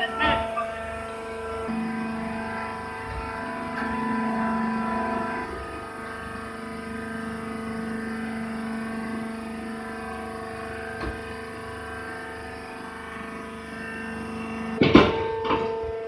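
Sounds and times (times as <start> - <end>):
hydraulic power unit humming: 0.0 - 16.0
sudden loud knock: 14.8 - 15.8.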